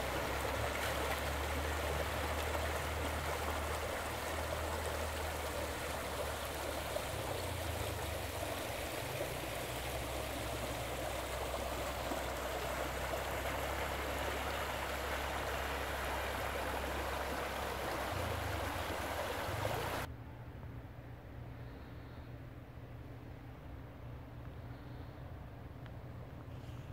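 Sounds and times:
creek water rushing over stones: 0:00.0 - 0:20.1.

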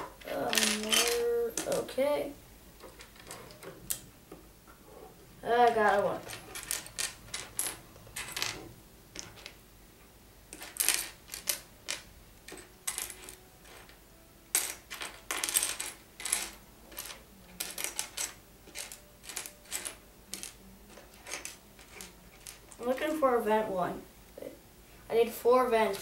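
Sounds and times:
plastic bricks clattering: 0:00.2 - 0:01.9, 0:10.5 - 0:22.8.

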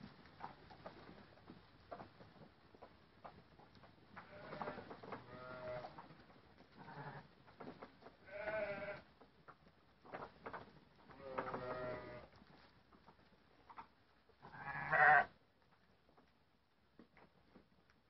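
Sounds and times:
sheep bleating: 0:06.8 - 0:07.3, 0:08.2 - 0:09.1, 0:11.1 - 0:12.3, 0:14.4 - 0:15.3.

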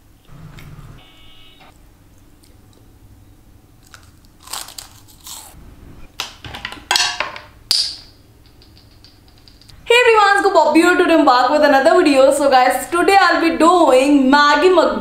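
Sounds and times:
crunchy bites into pastry: 0:03.8 - 0:05.6.

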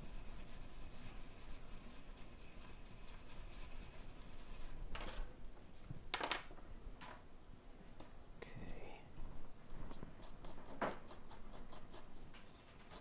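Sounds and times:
small brush scrubbing: 0:00.0 - 0:04.8, 0:09.9 - 0:13.0.

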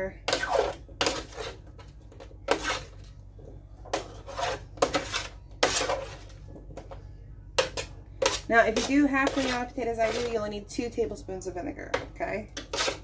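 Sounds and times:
metal spoon scraping a sheet pan: 0:00.3 - 0:01.7, 0:02.5 - 0:03.0, 0:03.9 - 0:06.3, 0:08.2 - 0:10.4, 0:12.6 - 0:13.0.

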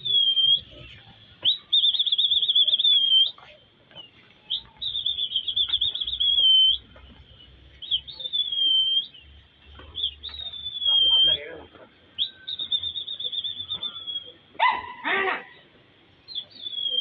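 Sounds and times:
shrill warbling whistle blasts: 0:00.0 - 0:03.4, 0:10.0 - 0:11.6, 0:12.2 - 0:14.8, 0:16.3 - 0:17.0.

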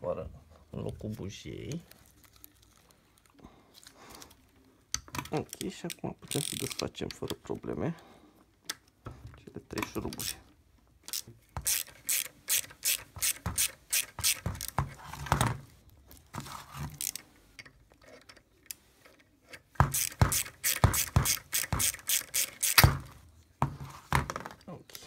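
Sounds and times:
ratchet wrench clicking: 0:11.1 - 0:14.4, 0:19.9 - 0:22.9.

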